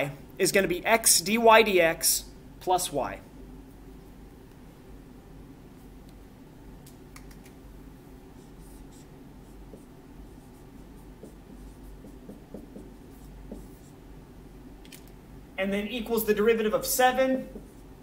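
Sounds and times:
low room hum: 0.0s - 18.0s
marker scratching on whiteboard: 8.3s - 14.0s, 17.5s - 18.0s.

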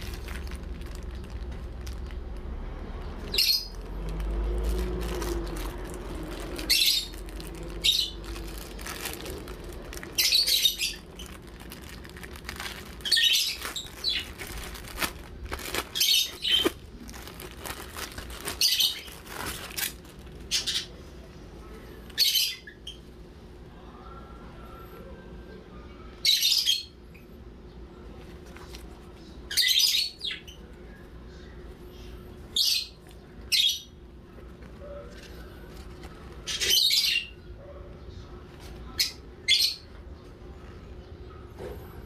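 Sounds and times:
plastic bag crinkling: 0.0s - 2.6s, 3.2s - 20.7s
low steady hum: 0.0s - 42.0s.

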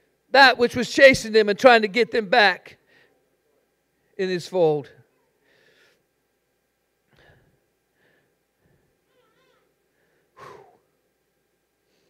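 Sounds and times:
faint breaths: 2.8s - 4.2s, 5.2s - 6.2s, 7.1s - 9.1s, 9.8s - 11.0s.

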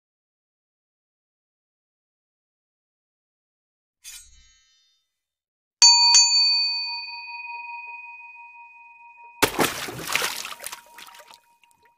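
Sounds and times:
bell dings: 5.8s - 9.4s.

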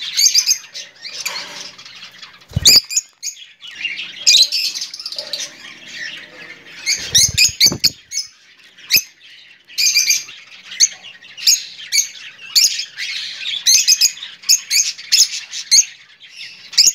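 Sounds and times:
lovebirds chirping and squawking: 0.0s - 16.9s
low thumps: 7.1s - 8.0s.

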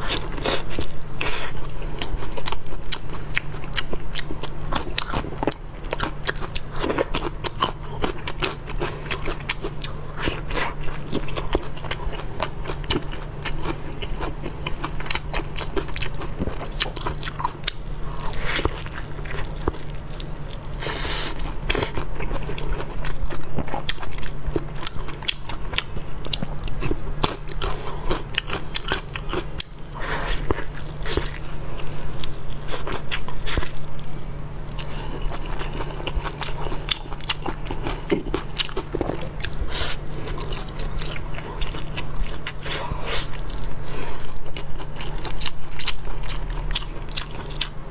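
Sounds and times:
crunchy lettuce chewing: 0.0s - 47.9s
sucking and tearing meat: 16.8s - 23.4s.

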